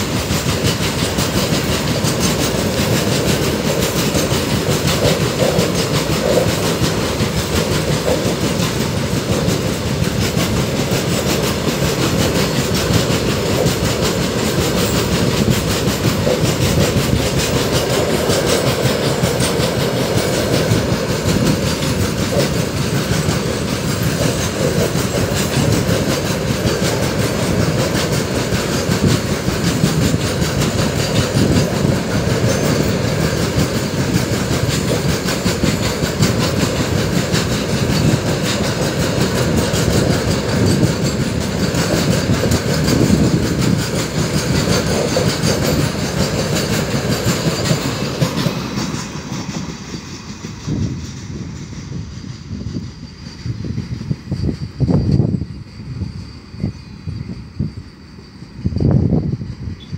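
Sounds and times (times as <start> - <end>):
wheels clattering over rails: 0.0 - 51.9
train rumbling past: 0.0 - 59.9.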